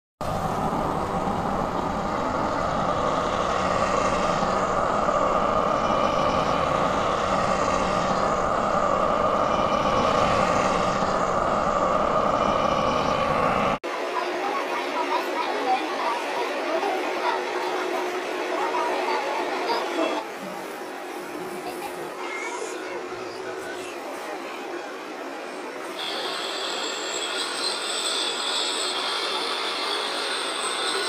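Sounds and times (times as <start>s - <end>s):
vehicle engine drone: 0.2s - 13.8s.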